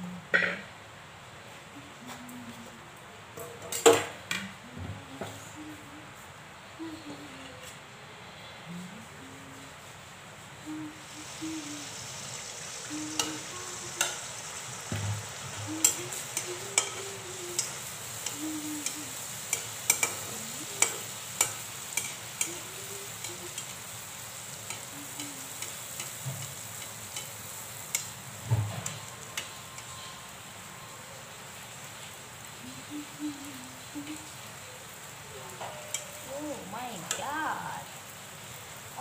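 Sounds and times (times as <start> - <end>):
batter deep-frying in oil: 10.6 - 39.0.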